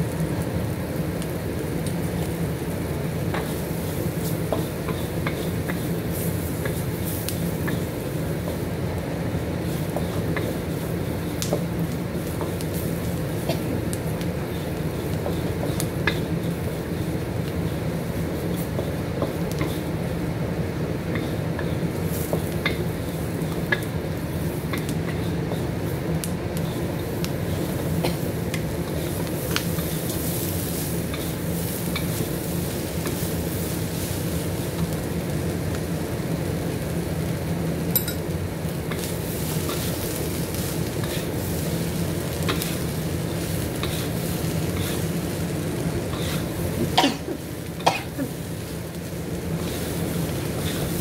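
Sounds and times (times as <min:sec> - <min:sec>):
food sizzling in oil: 0:00.0 - 0:51.0.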